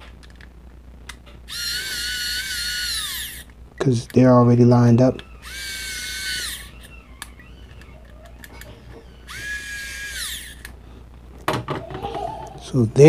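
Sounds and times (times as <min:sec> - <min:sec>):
electric screwdriver whirring: 0:01.5 - 0:03.5, 0:05.2 - 0:10.7.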